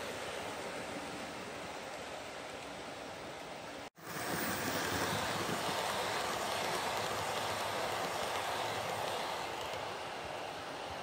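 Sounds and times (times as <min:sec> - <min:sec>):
model train wheels rumbling: 0:00.0 - 0:11.0.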